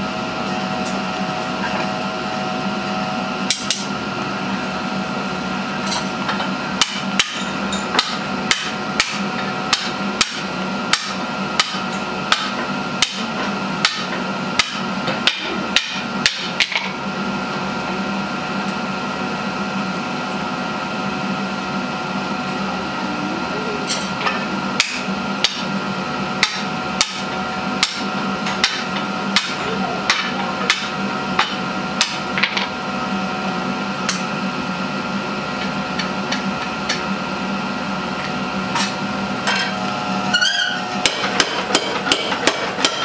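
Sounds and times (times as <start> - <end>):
forge humming: 0.0 - 43.0
hammer striking hot metal on anvil: 6.8 - 16.9, 24.0 - 25.7, 26.4 - 32.6, 40.3 - 43.0.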